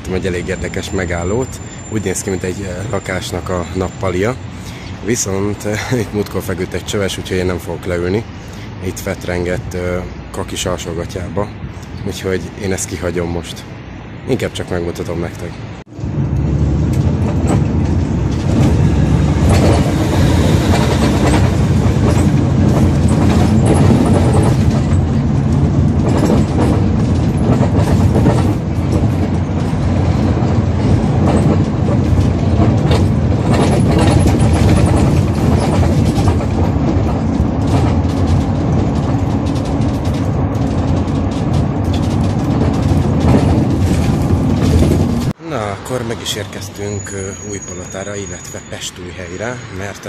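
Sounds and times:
bus engine and road rumble: 0.0s - 50.0s
body rattles and clicks: 15.9s - 45.4s.

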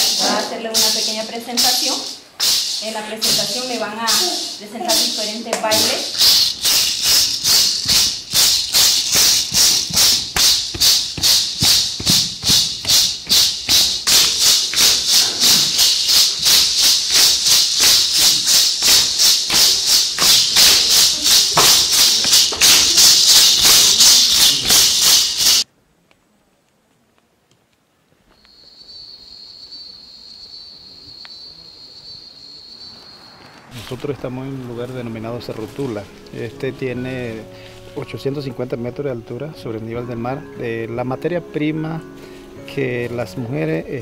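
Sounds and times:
rattles shaken in rhythm: 0.0s - 25.7s.

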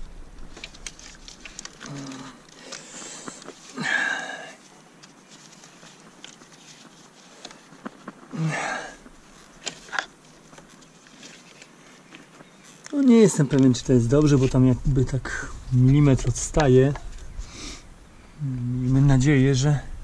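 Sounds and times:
person breathing: 1.8s - 4.7s, 8.3s - 9.1s, 17.4s - 18.6s.

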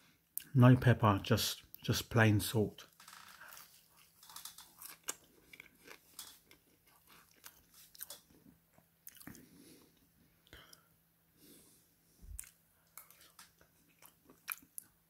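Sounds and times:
chewing: 3.4s - 10.6s, 12.3s - 15.0s.

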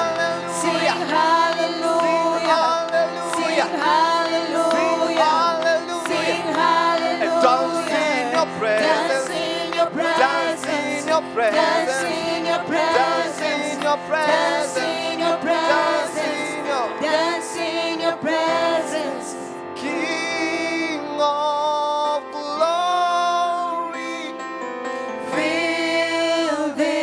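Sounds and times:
worship team singing gospel song: 0.0s - 24.2s, 25.2s - 27.0s.

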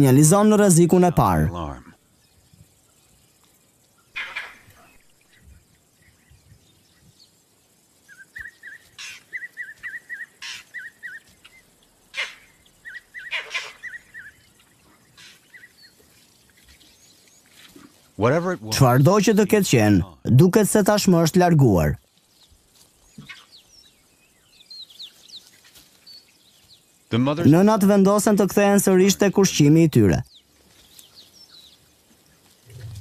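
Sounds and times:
monkey alarm calls: 8.1s - 11.3s, 12.1s - 14.4s.

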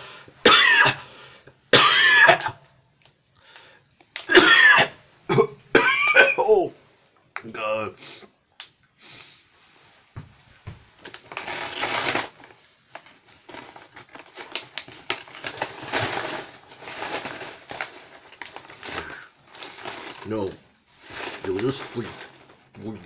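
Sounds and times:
paper bag crinkling: 11.0s - 23.0s.

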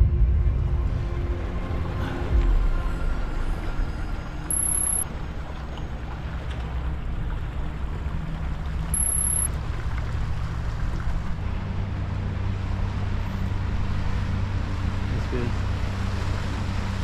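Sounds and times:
river water: 1.5s - 17.0s
short high electronic tone: 4.5s - 5.0s, 9.0s - 9.5s.

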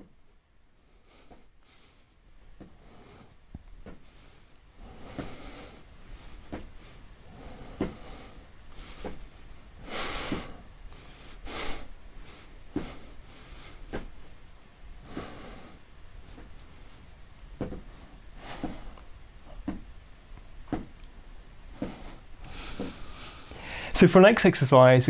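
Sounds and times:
feet tapping on mat: 3.6s - 4.1s, 6.4s - 6.9s, 7.5s - 9.3s, 12.7s - 13.1s, 13.8s - 14.3s, 17.6s - 20.0s, 20.6s - 21.0s, 21.7s - 23.2s
person exhaling sharply through nose: 21.8s - 24.0s.

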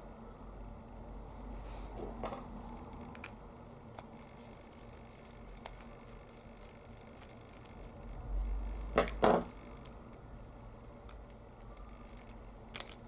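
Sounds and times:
small plastic clicks: 11.0s - 13.0s.

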